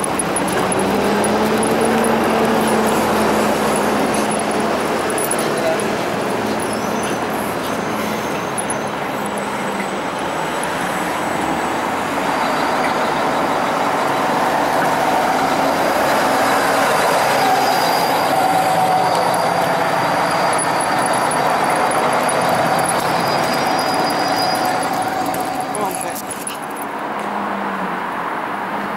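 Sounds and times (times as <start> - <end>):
bus driving past: 0.0 - 28.9
street traffic noise: 0.0 - 28.9.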